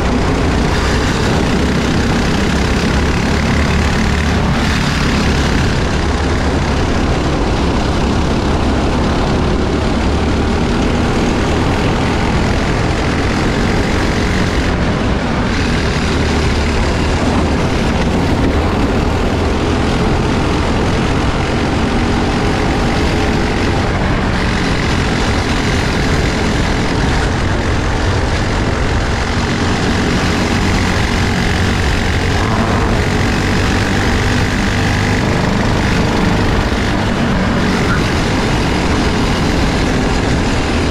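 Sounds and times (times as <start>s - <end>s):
kart engines racing: 0.0s - 40.9s
road and wind noise: 0.0s - 40.9s.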